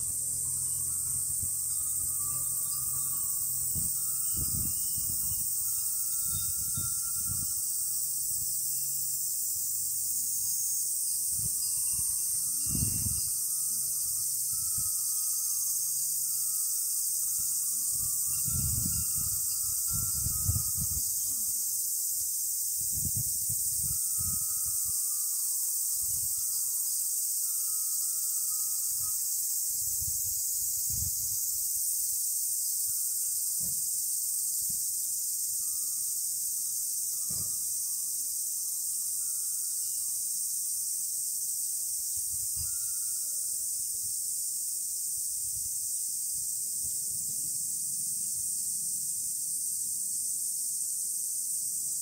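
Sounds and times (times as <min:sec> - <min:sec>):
cicadas chorus: 0:00.0 - 0:52.0
glass wind chimes ringing: 0:00.0 - 0:52.0
wind gusts on microphone: 0:03.6 - 0:07.6, 0:11.3 - 0:13.3, 0:17.9 - 0:21.2, 0:22.8 - 0:25.0, 0:29.8 - 0:31.6.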